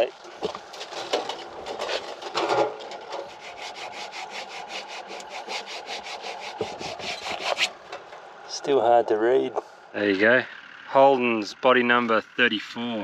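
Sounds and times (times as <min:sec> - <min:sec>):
hand scraping rusty metal plate: 0:00.3 - 0:08.2.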